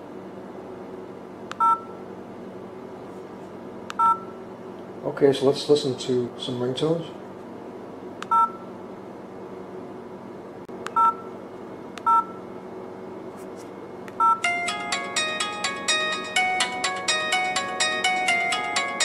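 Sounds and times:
phone ringtone melody: 14.2 - 19.0.

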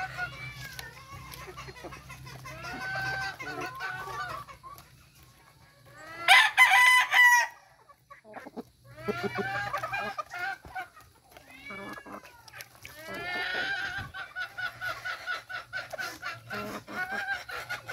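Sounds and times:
chickens clucking: 0.0 - 17.9
rooster crowing: 6.3 - 7.6.

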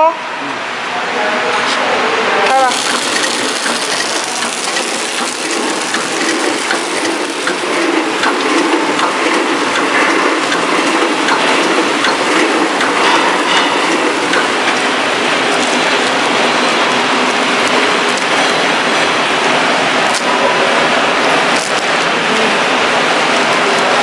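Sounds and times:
packaging machine clattering: 2.6 - 8.8.

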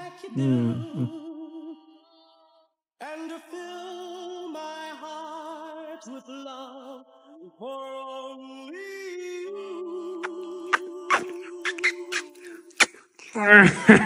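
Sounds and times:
person singing long held notes: 0.0 - 1.9.

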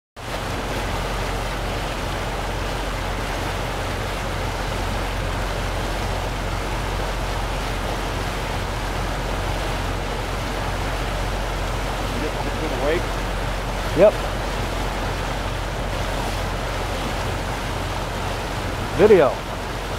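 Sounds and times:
water rushing along hull: 0.2 - 19.9.

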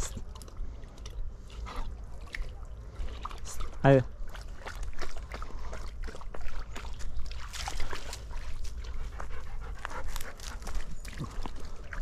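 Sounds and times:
water splashing: 0.0 - 12.0
dog panting: 8.4 - 11.4.

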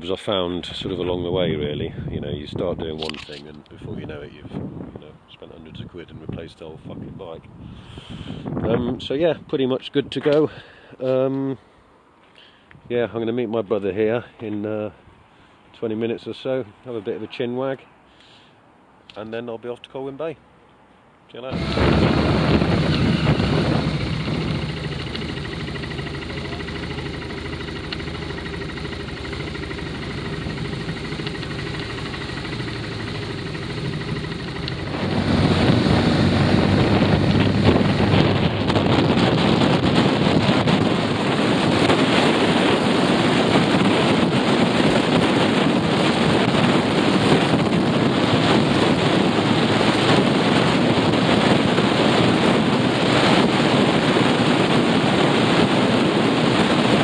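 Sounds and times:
wind rush over microphone: 0.6 - 9.6, 21.5 - 57.0
road noise: 16.7 - 53.7
motorcycle engine humming: 21.5 - 57.0.

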